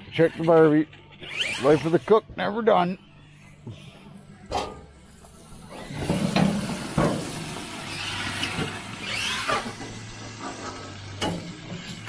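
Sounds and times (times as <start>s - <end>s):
grill lid clunk: 4.5s - 4.9s, 6.0s - 7.8s, 9.5s - 12.0s.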